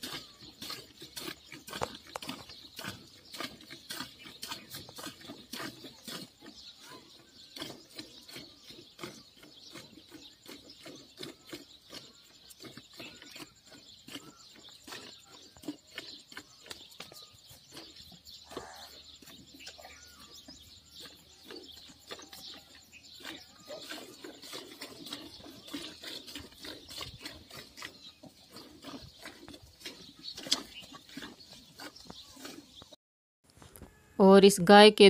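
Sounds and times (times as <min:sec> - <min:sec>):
faint high chirping: 0:12.7 - 0:23.9.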